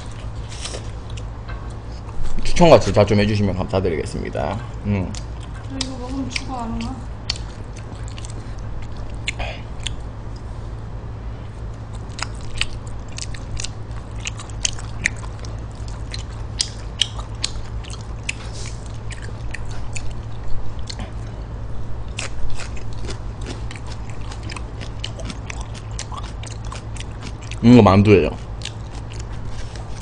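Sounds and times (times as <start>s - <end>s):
steady low hum: 0.0s - 30.0s
wet chewing and mouth smacks: 5.1s - 10.5s, 11.7s - 21.3s, 22.1s - 27.6s, 28.4s - 30.0s.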